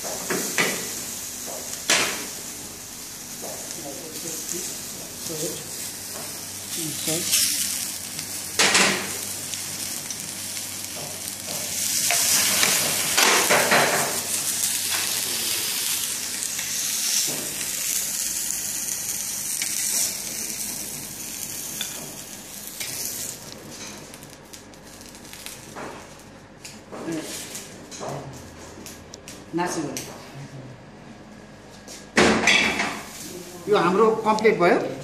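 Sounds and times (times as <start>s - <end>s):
tomato slices sizzling in a pan: 0.0s - 26.1s.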